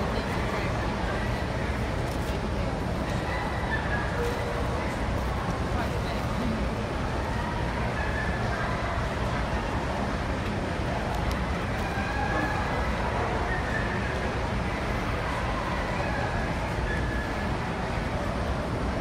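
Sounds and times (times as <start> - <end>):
many distant voices: 0.0 - 19.0.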